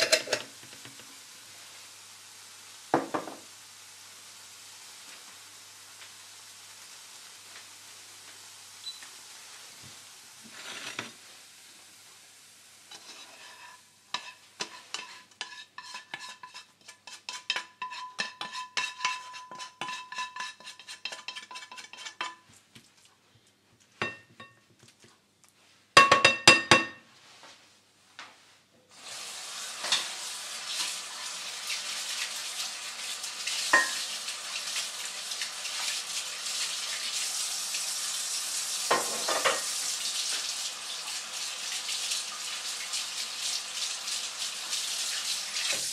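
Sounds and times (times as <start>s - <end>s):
spatula knocking on pan: 3.0s - 3.4s, 26.0s - 27.0s
spatula scraping a pan: 10.4s - 11.2s, 12.9s - 23.1s, 33.6s - 34.0s, 38.9s - 39.8s.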